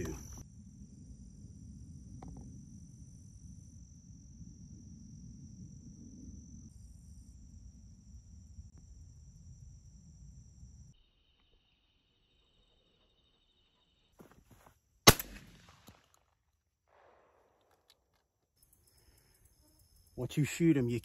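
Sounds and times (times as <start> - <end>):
crickets and insects chorus: 0.0 - 14.4, 18.6 - 21.0.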